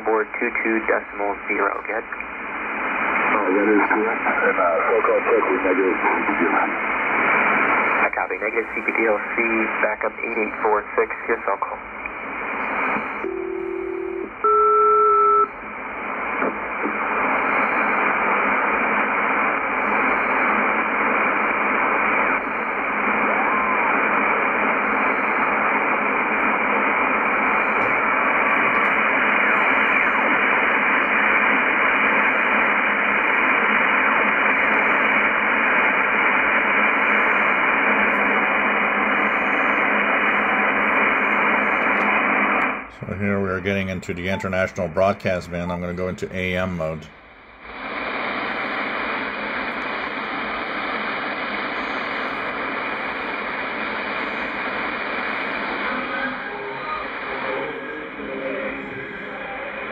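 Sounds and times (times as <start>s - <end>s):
two-tone radio call: 0.0s - 2.2s, 3.2s - 6.9s, 7.8s - 12.0s, 42.9s - 47.2s
radio receiver hiss: 0.0s - 14.4s, 15.4s - 59.9s.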